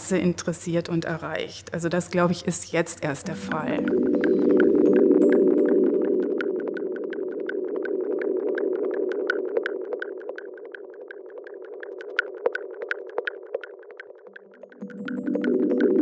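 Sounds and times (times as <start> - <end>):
light ticking pulse: 2.7 - 16.0
synthesizer pad: 3.2 - 16.0.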